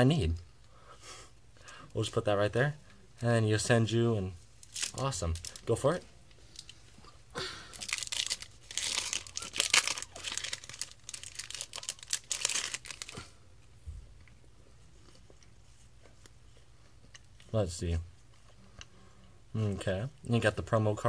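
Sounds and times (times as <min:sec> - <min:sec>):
foil wrapper tearing and crinkling: 0:04.6 - 0:05.7, 0:07.7 - 0:13.2.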